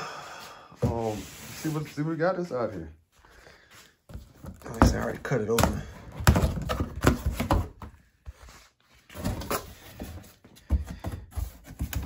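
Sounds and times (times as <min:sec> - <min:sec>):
cardboard rustling: 0:04.1 - 0:12.0
knocks and scrapes on box: 0:09.1 - 0:12.0.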